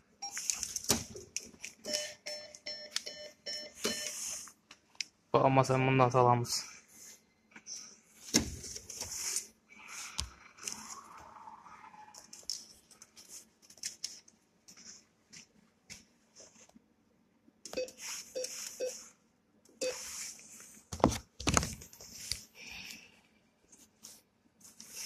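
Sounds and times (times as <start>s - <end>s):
keypad beeps: 1.9s - 4.2s, 17.7s - 19.0s.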